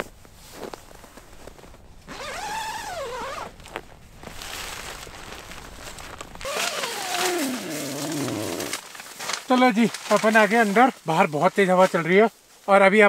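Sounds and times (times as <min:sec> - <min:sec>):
nylon rustling: 0:00.0 - 0:12.6
footsteps: 0:00.0 - 0:12.7
tent zipper pulled open: 0:02.1 - 0:05.2, 0:05.9 - 0:08.8.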